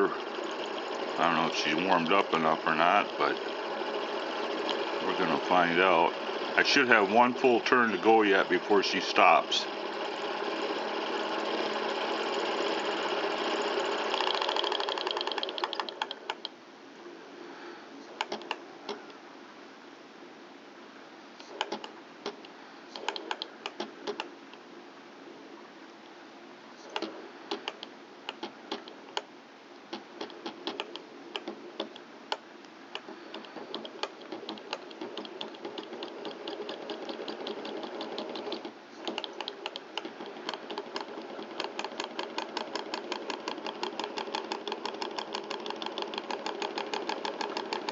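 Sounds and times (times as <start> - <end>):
stirling engine clattering: 0.0 - 15.7.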